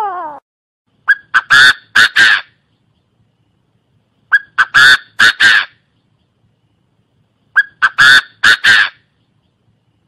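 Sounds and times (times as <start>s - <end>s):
francolin calling: 4.2s - 6.4s, 7.4s - 9.6s.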